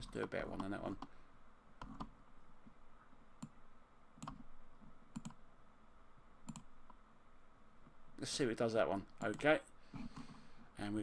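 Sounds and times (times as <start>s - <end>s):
computer mouse clicking: 1.8s - 2.2s, 4.2s - 5.4s, 6.4s - 7.0s.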